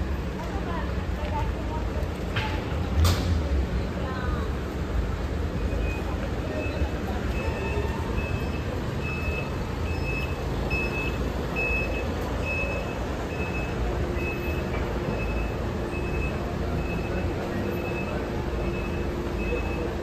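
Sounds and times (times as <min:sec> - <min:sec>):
low rumble of street traffic: 0:00.0 - 0:20.0
electronic warning beeps: 0:05.5 - 0:20.0.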